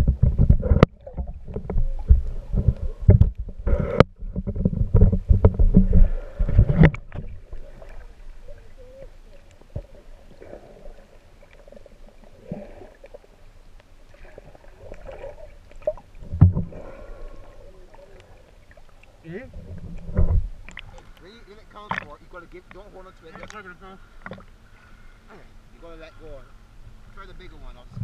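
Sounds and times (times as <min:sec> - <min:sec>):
water sloshing and splashing: 0:00.0 - 0:25.0
muffled underwater murmuring: 0:07.6 - 0:11.2, 0:16.7 - 0:19.8, 0:20.6 - 0:28.0.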